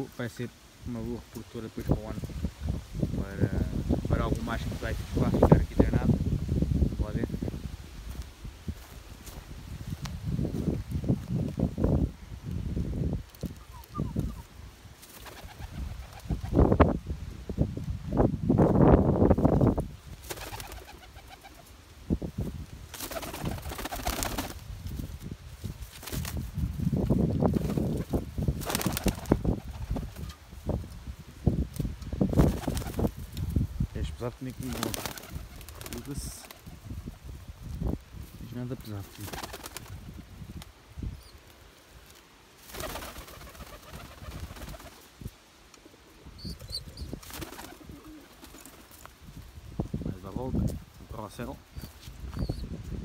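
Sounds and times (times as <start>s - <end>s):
pigeons cooing: 45.9s - 48.7s.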